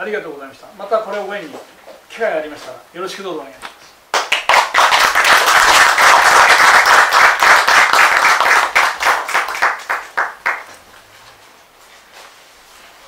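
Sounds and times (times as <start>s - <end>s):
audience applauding: 4.1s - 10.8s.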